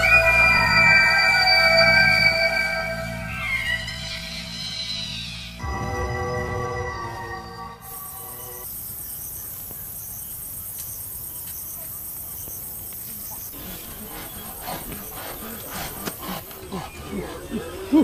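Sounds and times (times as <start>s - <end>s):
crickets chirping: 3.7s - 16.9s.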